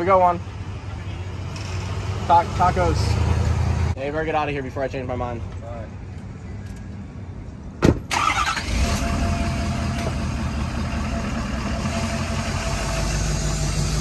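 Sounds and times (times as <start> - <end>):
truck door slamming: 7.8 - 8.1
pickup engine starting and idling: 8.0 - 14.0.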